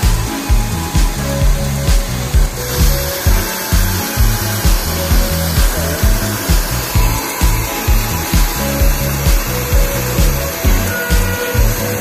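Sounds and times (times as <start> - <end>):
hair dryer blowing: 0.0 - 12.0
music with heavy bass beat: 0.0 - 12.0.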